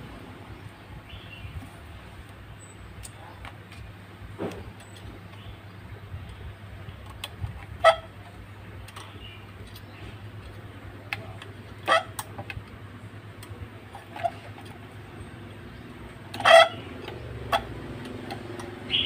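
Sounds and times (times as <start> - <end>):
clicks and taps of wire pieces: 8.8 - 12.8.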